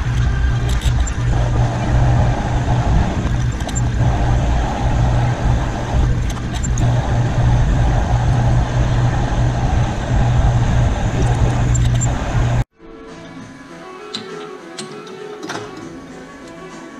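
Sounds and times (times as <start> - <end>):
metal lathe humming: 0.0 - 12.7.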